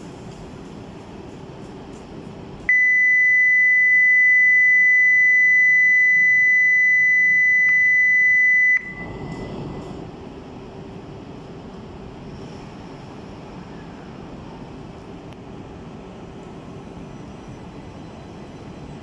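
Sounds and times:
high electronic beep: 2.7s - 9.6s.

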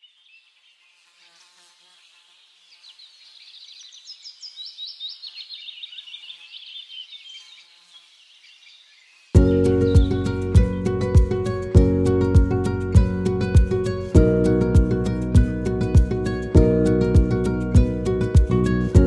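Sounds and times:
small birds twittering: 0.0s - 1.2s, 1.8s - 10.8s.

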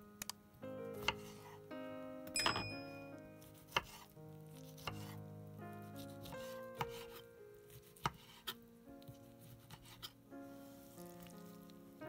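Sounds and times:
soft instrumental music: 0.0s - 12.0s
kitchen knocks: 2.4s - 3.0s.

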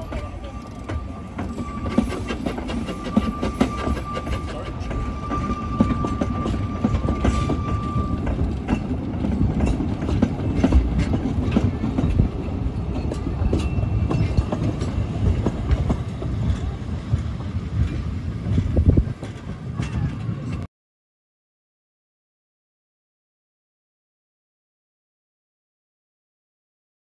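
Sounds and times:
steady high-pitched tone: 0.0s - 8.5s
train wheels rumbling on track: 0.0s - 20.7s.

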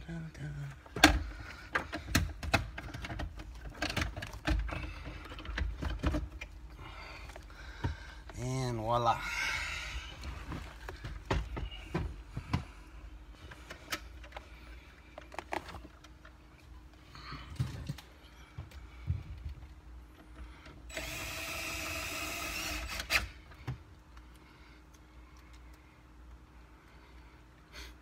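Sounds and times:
plastic parts clicking and knocking: 0.9s - 6.6s
cordless drill driving screw: 20.9s - 23.4s.

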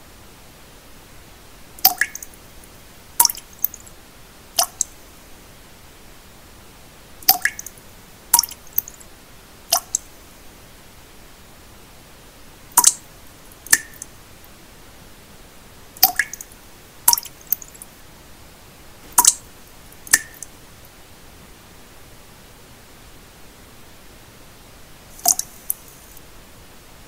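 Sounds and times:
soft steady hiss: 0.0s - 27.0s
water drops plinking into water: 1.8s - 2.4s, 3.2s - 3.8s, 4.6s - 5.0s, 7.2s - 7.8s, 8.4s - 9.0s, 9.7s - 10.1s, 12.7s - 13.0s, 13.6s - 14.1s, 16.0s - 16.5s, 17.1s - 17.8s, 19.2s - 19.4s, 20.0s - 20.5s, 25.2s - 25.6s.

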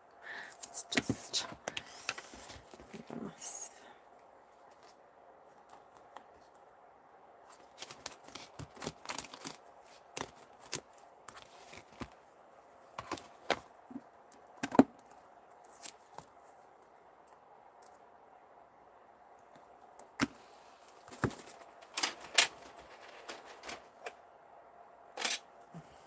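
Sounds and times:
plastic rustling: 7.5s - 12.2s, 20.9s - 24.0s.

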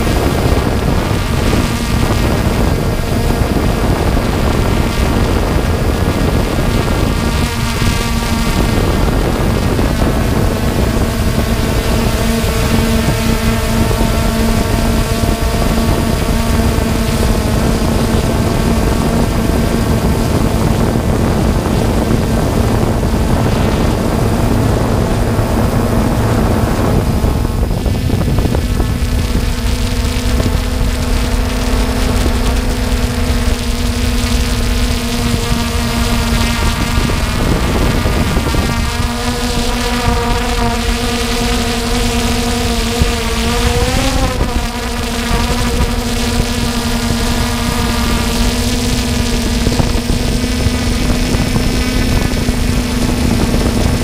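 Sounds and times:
drone propellers humming: 0.0s - 54.0s
wind noise on microphone: 0.0s - 54.0s.

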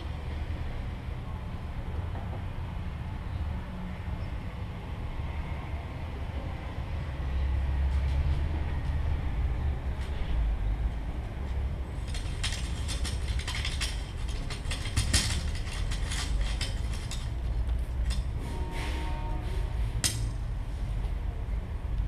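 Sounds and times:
low handling rumble: 7.9s - 18.4s.

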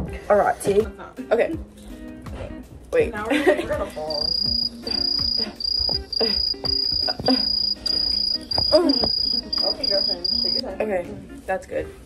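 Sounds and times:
cricket chirping: 4.1s - 10.6s.

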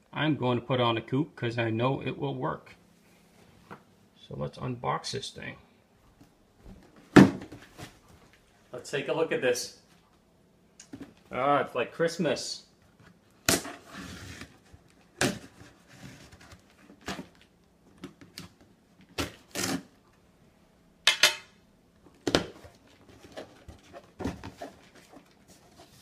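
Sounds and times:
blade scraping packing tape: 19.2s - 19.9s
cardboard being handled: 22.3s - 26.0s.

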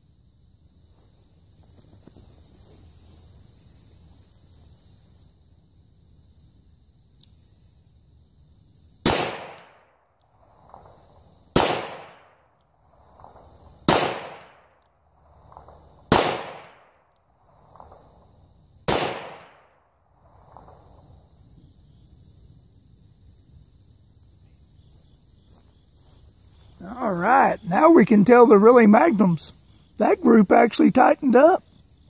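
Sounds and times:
revolver gunshots: 9.1s - 9.8s, 11.6s - 12.2s, 13.9s - 14.6s, 16.1s - 16.9s, 18.9s - 19.6s.

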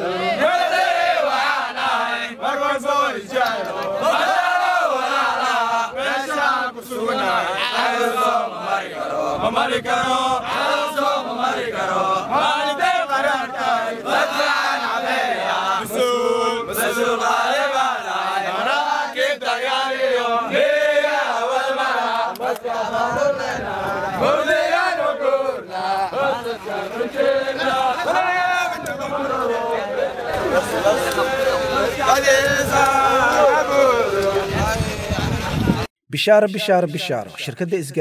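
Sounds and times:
soldiers chanting: 0.0s - 35.3s.

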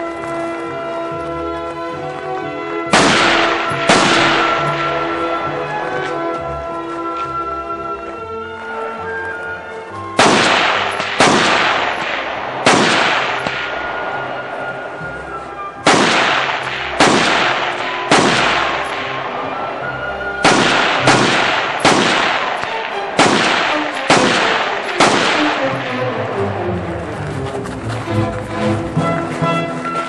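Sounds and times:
background music: 0.0s - 30.0s
rifle shots with echo: 2.9s - 5.4s, 10.2s - 14.6s, 15.8s - 19.8s, 20.4s - 26.2s.

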